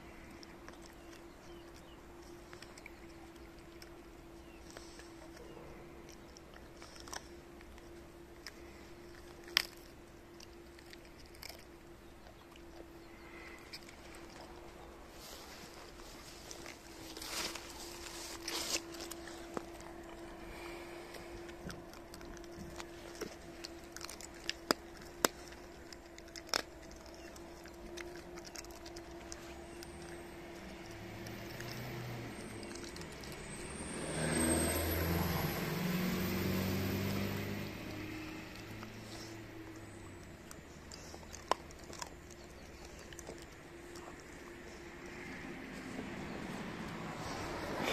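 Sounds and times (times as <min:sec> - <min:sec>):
dog crunching bones: 0:00.0 - 0:47.9
faint steady hum: 0:00.0 - 0:47.9
faint crunching clicks: 0:21.1 - 0:33.5, 0:38.5 - 0:46.0.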